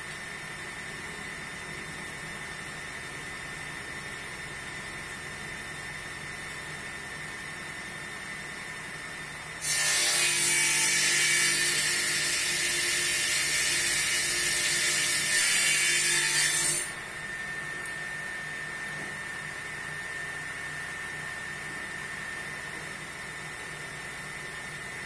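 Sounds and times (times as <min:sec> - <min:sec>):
table saw cutting wood: 0:09.6 - 0:17.9.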